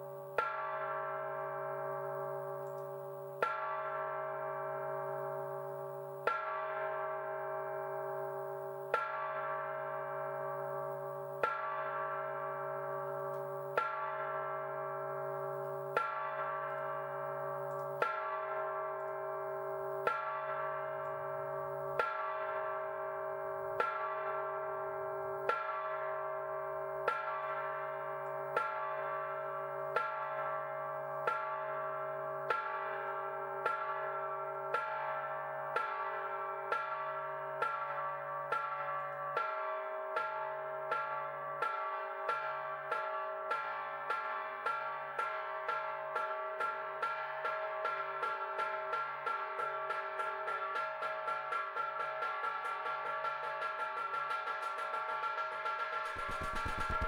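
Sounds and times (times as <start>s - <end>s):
bell-like metallic strikes: 48.4s - 57.0s.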